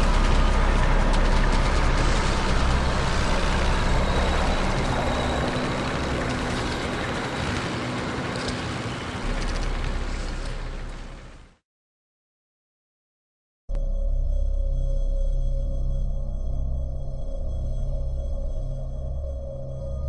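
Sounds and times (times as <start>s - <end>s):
heavy engine-like rumble: 0.0s - 11.5s
dense noisy roar: 0.0s - 11.6s.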